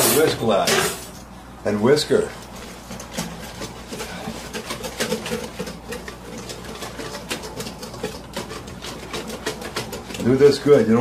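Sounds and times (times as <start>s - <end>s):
whisk clicking in metal bowl: 2.4s - 11.0s.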